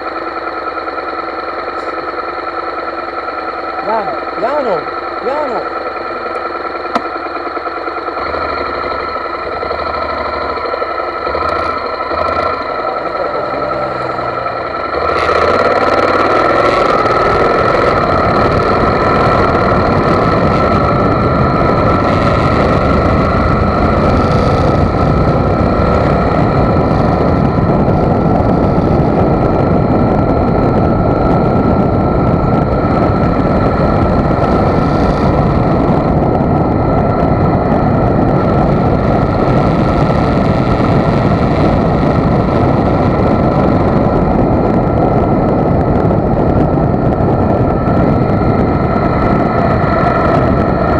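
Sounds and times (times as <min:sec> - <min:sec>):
motorcycle engine whine: 0:00.0 - 0:50.9
wind and road noise: 0:00.0 - 0:50.9.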